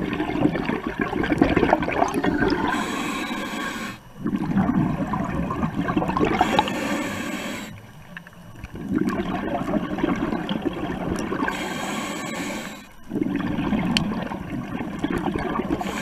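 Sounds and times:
bubbling underwater exhalations: 0:00.0 - 0:07.7, 0:08.7 - 0:16.0
hissing regulator inhalation: 0:02.5 - 0:04.1, 0:06.3 - 0:07.8, 0:11.4 - 0:13.0, 0:15.7 - 0:16.0.

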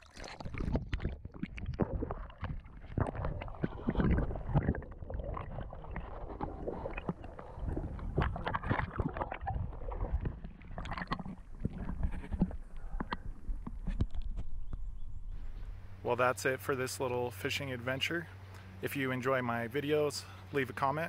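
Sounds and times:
muffled underwater gurgling: 0:00.0 - 0:14.0
small underwater knocks and clicks: 0:00.1 - 0:14.9.

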